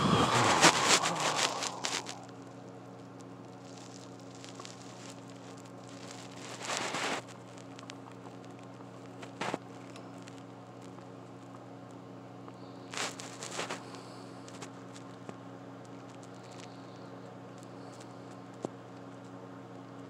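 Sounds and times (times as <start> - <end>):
rustle: 0.0 - 2.3
low electrical hum: 0.0 - 20.0.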